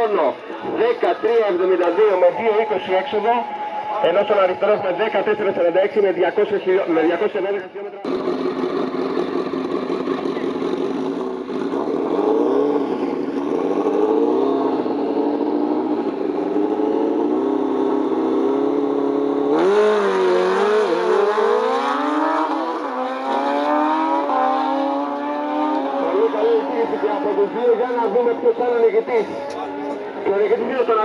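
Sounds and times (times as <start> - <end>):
motorcycles accelerating through gears: 8.0 - 31.0
motorcycles revving: 8.0 - 31.0.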